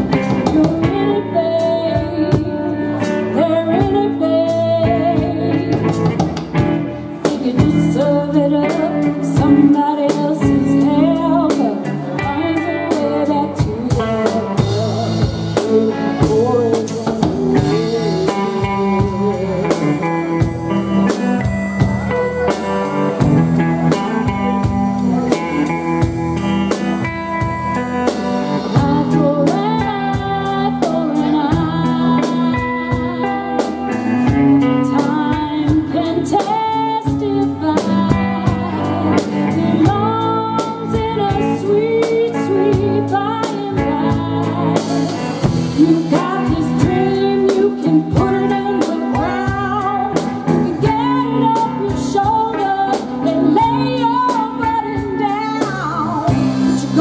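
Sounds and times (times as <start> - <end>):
drum kit beat: 0.0 - 57.0
electric guitar: 0.0 - 57.0
woman singing into a microphone: 0.0 - 57.0.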